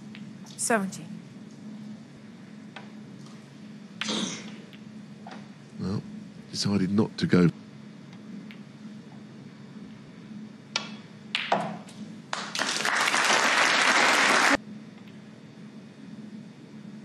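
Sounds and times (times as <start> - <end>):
audience applauding: 12.3 - 14.6.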